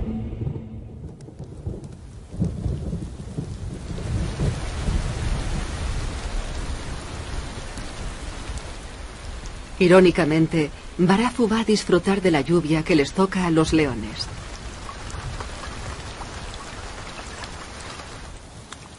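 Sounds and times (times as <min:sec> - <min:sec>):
rolling thunder rumbles: 0:00.0 - 0:09.8
heavy rain: 0:00.0 - 0:18.9.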